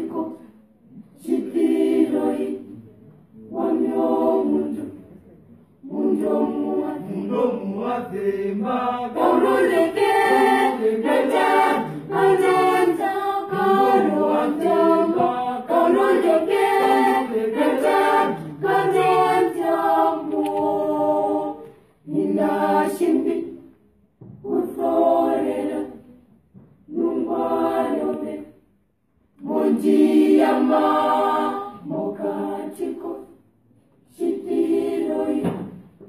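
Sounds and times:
girls' choir singing a cappella: 0:00.0 - 0:36.0.

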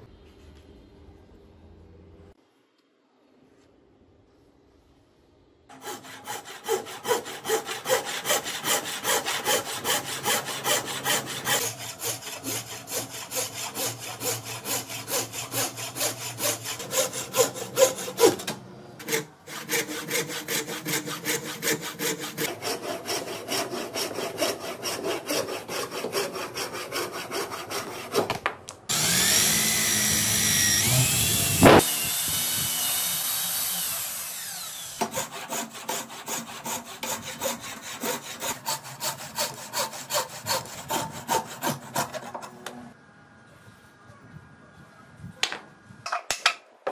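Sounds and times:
scroll saw cutting wood: 0:05.7 - 0:28.3, 0:28.9 - 0:43.0
electric drill boring into wood: 0:28.9 - 0:35.2.

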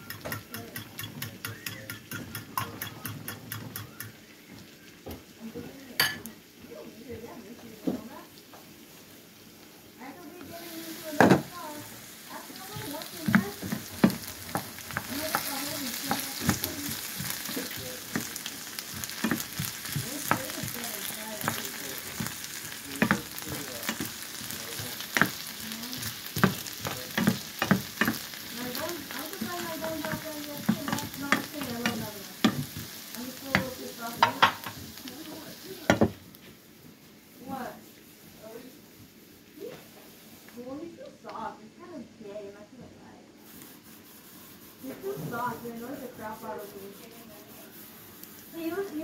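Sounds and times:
potatoes sizzling in oil: 0:00.0 - 0:42.6, 0:43.4 - 0:49.0
utensil scraping a frying pan: 0:10.6 - 0:36.1, 0:43.4 - 0:49.0.

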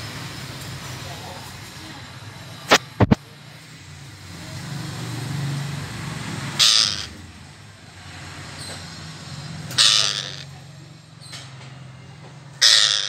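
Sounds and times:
parakeet calls: 0:06.6 - 0:07.2, 0:09.6 - 0:10.6, 0:12.6 - 0:13.0.

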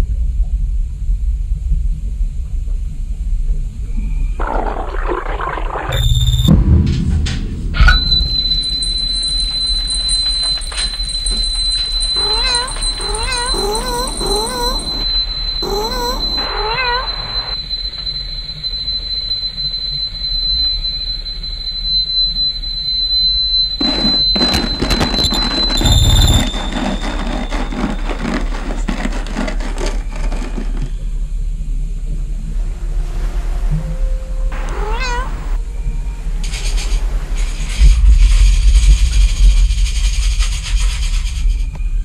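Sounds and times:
low rumble: 0:04.1 - 0:09.8
burst of noise: 0:04.4 - 0:09.4
steady high-pitched tone: 0:05.9 - 0:17.6
cat meowing: 0:12.2 - 0:17.6, 0:34.6 - 0:35.6.

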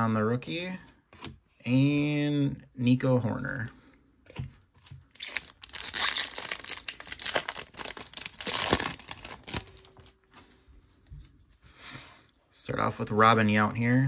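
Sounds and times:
foil wrapper tearing and crinkling: 0:05.1 - 0:10.1.

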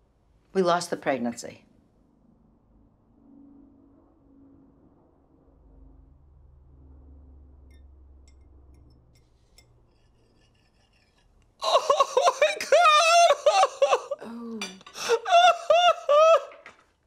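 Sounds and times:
man crying loudly: 0:11.6 - 0:14.3, 0:15.0 - 0:16.6.

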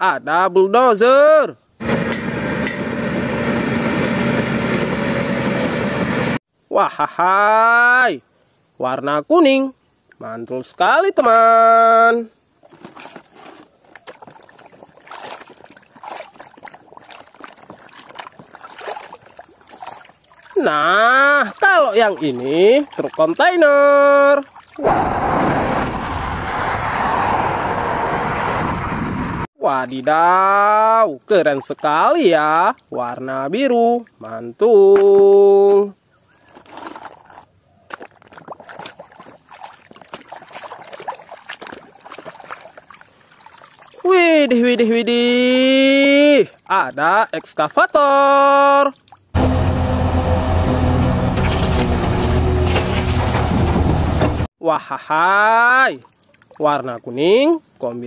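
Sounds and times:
water sloshing in plastic basin: 0:12.6 - 0:24.8, 0:31.3 - 0:32.9, 0:36.3 - 0:44.1, 0:56.0 - 0:57.1.

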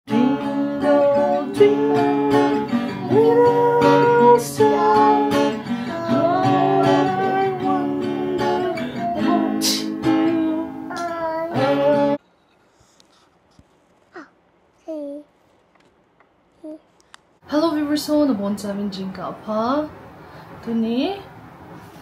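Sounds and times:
acoustic guitar strumming chords: 0:00.1 - 0:12.2
person singing: 0:00.1 - 0:12.2.

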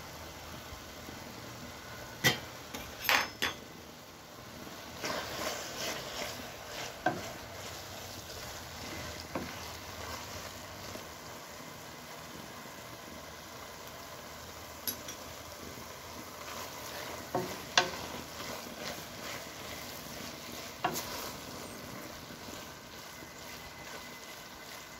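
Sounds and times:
spoon clinking against pot: 0:02.2 - 0:03.6, 0:14.8 - 0:15.2
spoon stirring mashed food: 0:05.0 - 0:11.0, 0:16.1 - 0:24.9.

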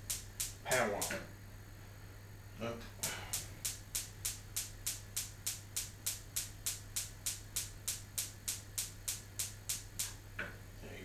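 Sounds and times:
spark igniter clicking: 0:00.0 - 0:01.2, 0:03.0 - 0:10.2
low steady hum: 0:00.0 - 0:11.0.

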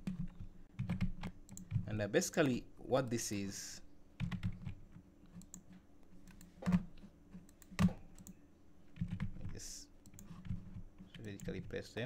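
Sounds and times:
keyboard and mouse clicks: 0:00.0 - 0:01.9, 0:04.2 - 0:08.4, 0:09.0 - 0:11.7.

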